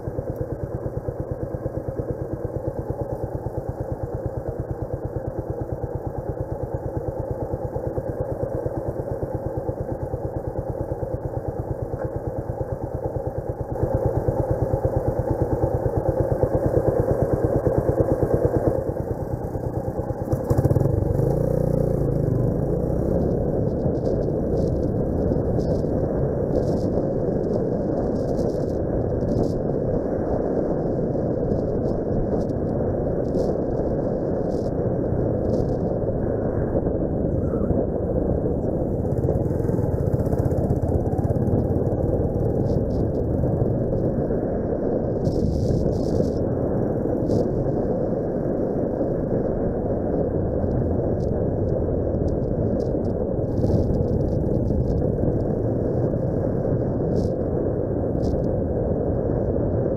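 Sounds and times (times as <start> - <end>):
motorcycle engine idling and pulling away: 0.0 - 47.5
wind noise on microphone: 0.0 - 59.9.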